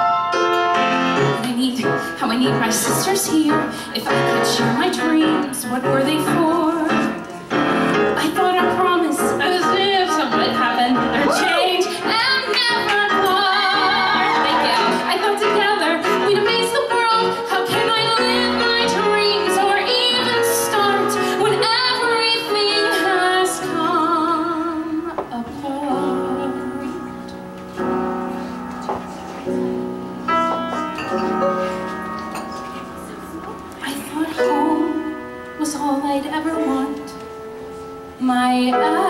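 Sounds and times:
piano accompaniment: 0.0s - 39.0s
woman belting a ballad: 1.2s - 7.3s, 7.9s - 27.4s, 33.8s - 37.3s, 38.1s - 39.0s.

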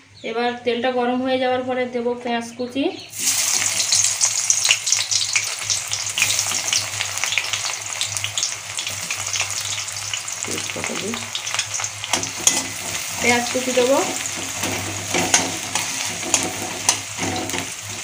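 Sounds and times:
onions sizzling in oil: 3.1s - 18.0s
spatula stirring: 11.4s - 18.0s.

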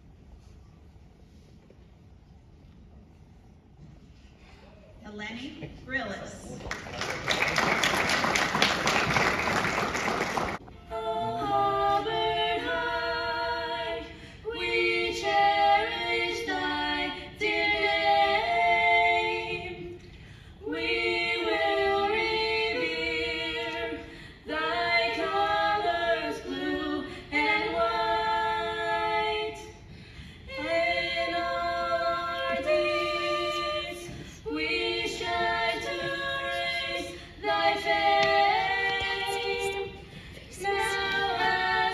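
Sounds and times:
applause: 6.6s - 10.6s
women singing a cappella: 10.7s - 41.9s.

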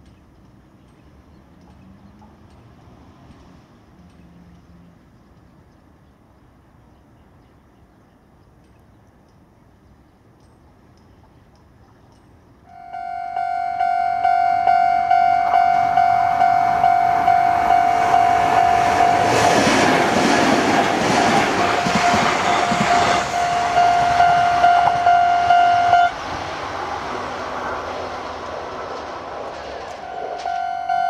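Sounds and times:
train passing: 1.2s - 5.1s, 12.7s - 31.0s
level crossing bell ringing: 12.7s - 19.4s, 22.1s - 26.1s, 30.0s - 31.0s.

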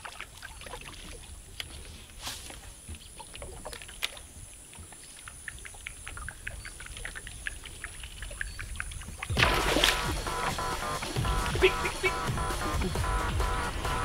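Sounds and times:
faint water lapping: 0.0s - 14.0s
loud music: 9.4s - 14.0s.

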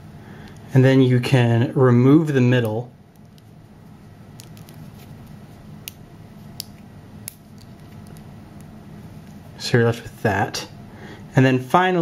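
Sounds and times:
faint low hum: 0.0s - 12.0s
magnet spheres clicking: 4.3s - 4.8s, 5.8s - 8.7s.

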